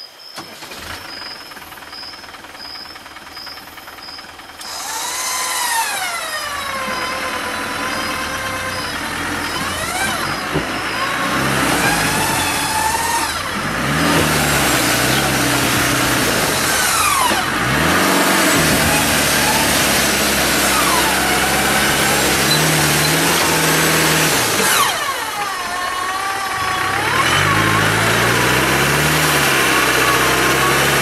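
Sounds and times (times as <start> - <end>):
faint high pulsing chirp: 0.0 - 4.7
vehicle engine revving: 0.4 - 31.0
electric winch motor whine: 4.5 - 31.0.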